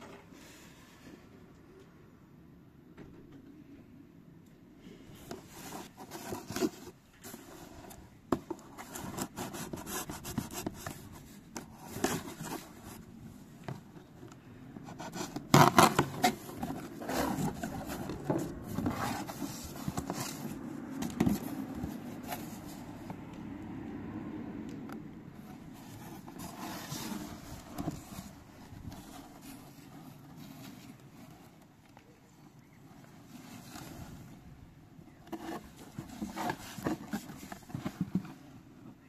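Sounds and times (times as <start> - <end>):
cardboard scraping and rubbing: 5.2 - 14.2, 14.8 - 23.2, 25.3 - 31.7, 32.9 - 34.5, 35.1 - 39.0.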